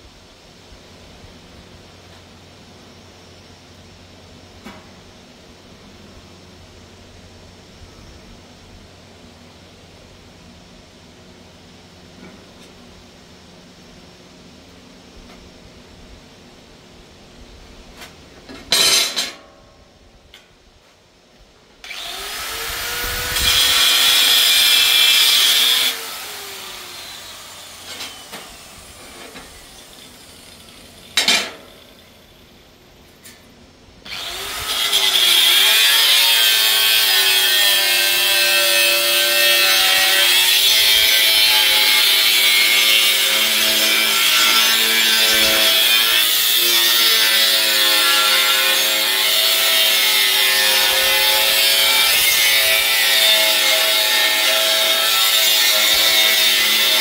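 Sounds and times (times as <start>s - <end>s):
angle grinder grinding metal: 21.9s - 32.3s, 34.1s - 57.0s.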